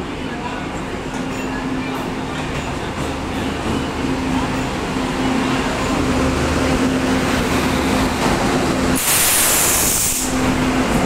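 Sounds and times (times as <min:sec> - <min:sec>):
electric locomotive humming past: 0:00.0 - 0:11.0
loud burst of hissing air: 0:09.0 - 0:10.6.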